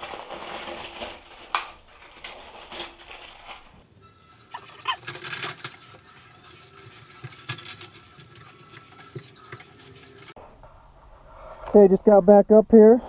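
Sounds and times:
cable scraping against wall: 4.7s - 10.8s.

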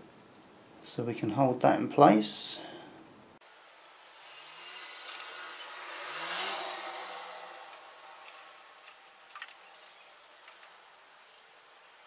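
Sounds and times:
vehicle passing by: 4.0s - 9.2s.

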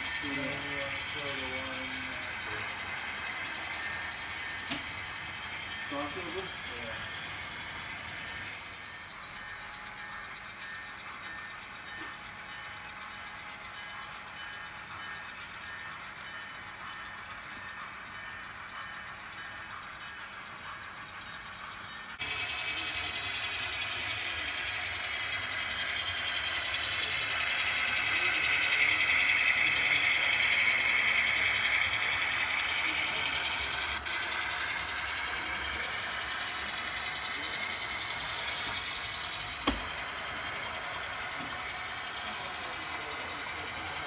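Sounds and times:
model locomotive whine: 0.0s - 44.0s
model train wheels clicking: 0.0s - 44.0s.

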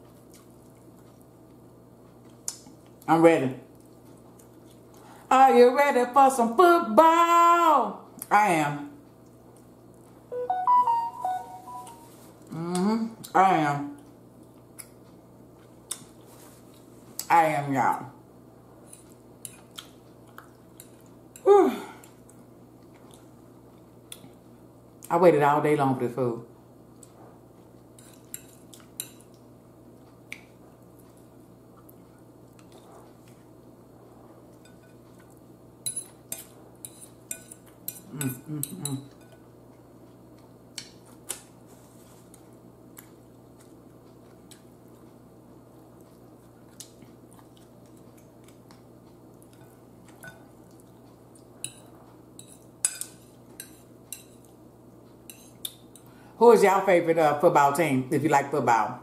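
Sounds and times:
faint room hum: 0.0s - 59.0s
metal fork clinking on bowl: 35.8s - 39.4s.

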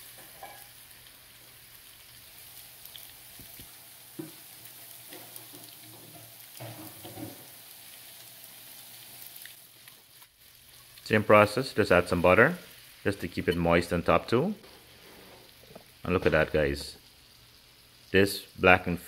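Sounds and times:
fish sizzling in a skillet: 0.0s - 13.8s.

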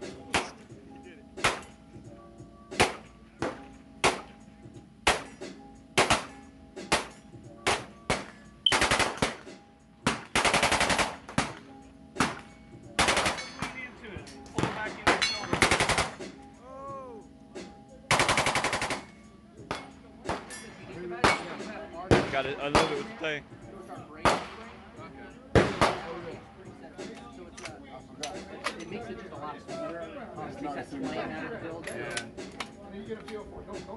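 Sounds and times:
pistol gunshots: 1.4s - 1.8s, 2.8s - 4.4s, 5.0s - 5.4s, 6.0s - 11.6s, 12.2s - 13.8s, 14.6s - 16.2s, 18.1s - 19.1s, 19.7s - 20.6s, 21.2s - 23.2s, 24.2s - 24.8s, 25.5s - 26.4s.

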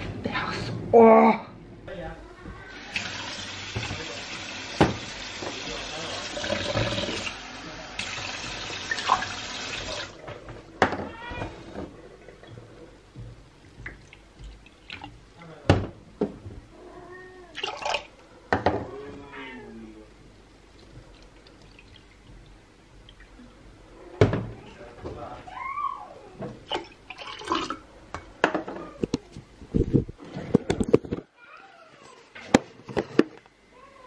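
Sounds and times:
animal crying: 18.8s - 19.9s.

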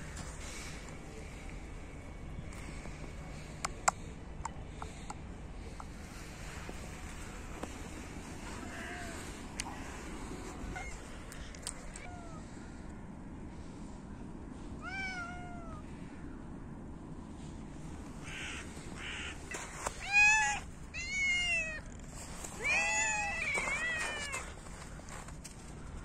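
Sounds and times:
cats meowing: 8.4s - 11.2s, 14.8s - 15.9s, 18.3s - 24.6s.

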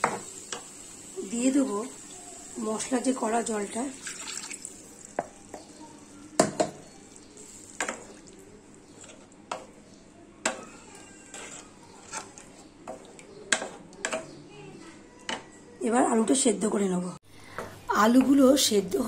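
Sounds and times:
spatula scraping pan: 6.0s - 14.4s.

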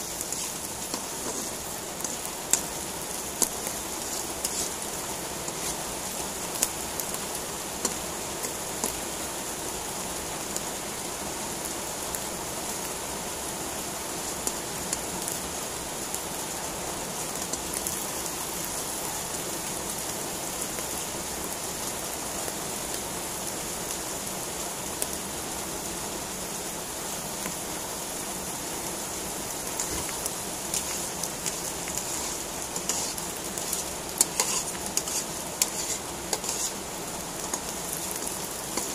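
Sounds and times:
spatula scraping pan: 0.0s - 6.7s, 29.8s - 38.9s
mushrooms sizzling in oil: 0.0s - 38.9s.

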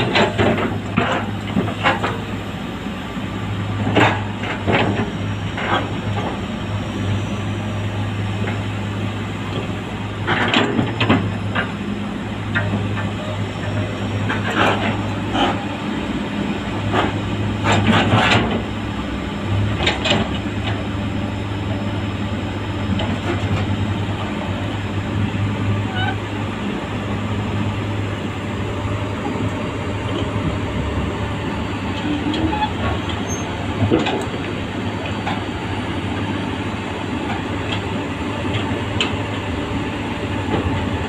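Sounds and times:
metal clanks of steel tracks: 0.0s - 2.4s, 3.7s - 6.4s, 9.5s - 11.8s, 12.4s - 15.8s, 16.8s - 18.7s, 19.5s - 20.8s, 22.9s - 26.9s, 29.1s - 41.0s
diesel engine running: 0.0s - 41.0s.

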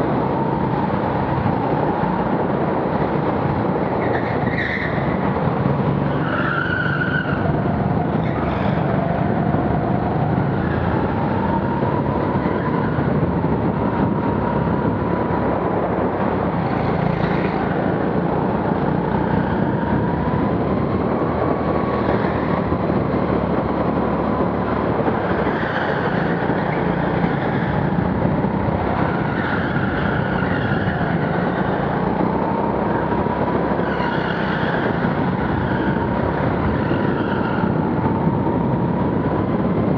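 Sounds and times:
tyre squeals: 6.0s - 7.5s.

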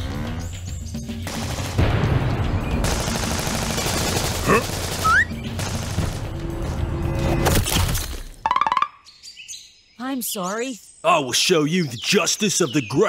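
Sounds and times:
background music: 0.0s - 9.0s
machine-gun fire: 1.2s - 6.3s.

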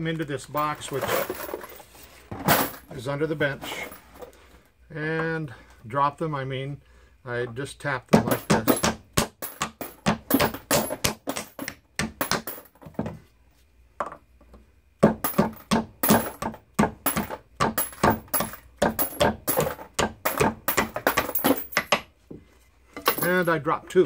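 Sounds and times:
brass cases clinking into box: 0.6s - 1.8s, 8.2s - 12.9s, 15.2s - 22.0s, 23.0s - 23.5s
rubber mallet knocking wood: 8.1s - 12.6s, 15.0s - 22.1s.

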